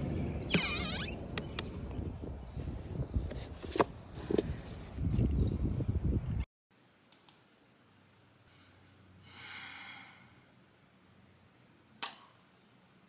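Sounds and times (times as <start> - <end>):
outdoor noise: 0.0 - 13.0
woman sharp breath: 8.5 - 10.5.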